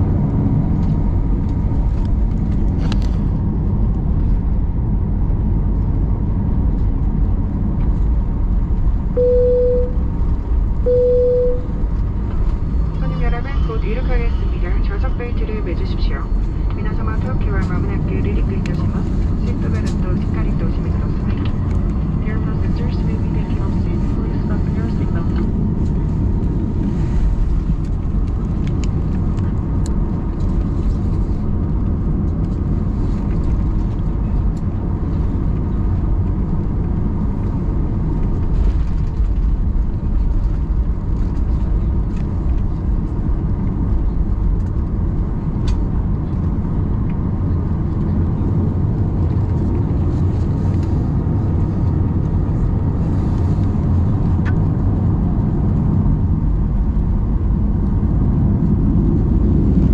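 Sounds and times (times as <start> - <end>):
airplane cabin drone: 0.0 - 59.9.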